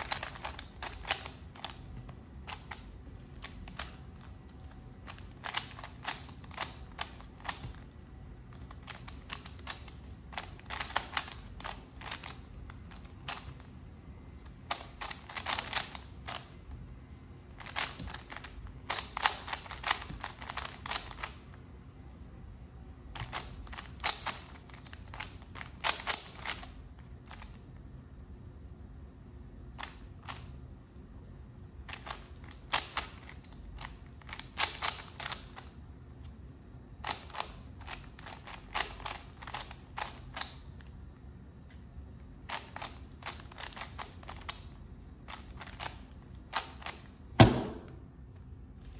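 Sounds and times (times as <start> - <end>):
puzzle cube layers clicking: 0.0 - 4.3, 5.0 - 7.8, 8.6 - 13.7, 14.7 - 16.5, 17.6 - 21.4, 23.2 - 26.7, 31.9 - 35.7, 37.0 - 40.6, 42.5 - 44.7.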